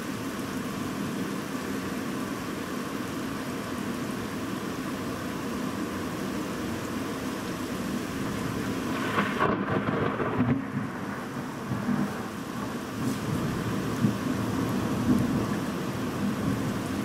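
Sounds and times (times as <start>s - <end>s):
heavy rain falling: 0.0s - 17.0s
thunder rumbling: 8.2s - 17.0s.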